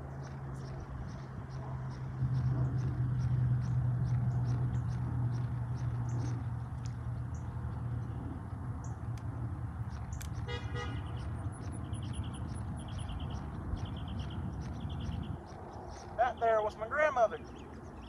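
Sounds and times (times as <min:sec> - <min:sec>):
steady low rumble: 0:00.0 - 0:18.0
car horn toot: 0:10.5 - 0:11.1.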